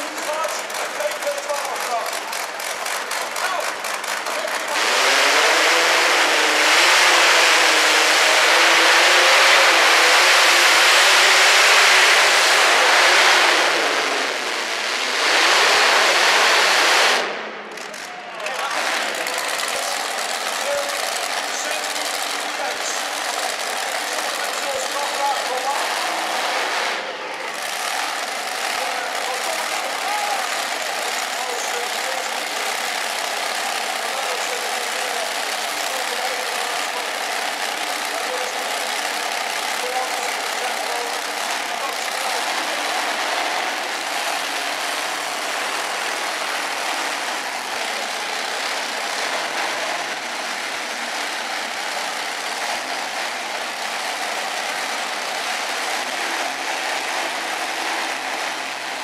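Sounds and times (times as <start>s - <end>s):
tractor engine running hard: 0.0s - 59.0s.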